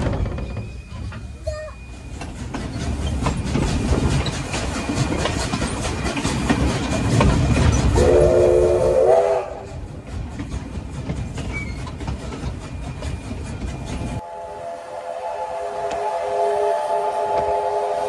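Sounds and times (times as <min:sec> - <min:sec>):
train wheels clattering over rail joints: 0:00.0 - 0:14.2
train running rumble: 0:00.0 - 0:18.0
steam whistle blowing: 0:08.0 - 0:09.7, 0:14.2 - 0:18.0.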